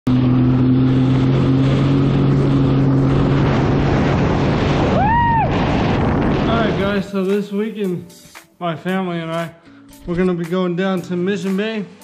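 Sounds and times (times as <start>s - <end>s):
high rising and falling tone: 0.0s - 7.4s
jet ski engine running: 0.1s - 5.0s
wind on microphone: 2.0s - 7.1s.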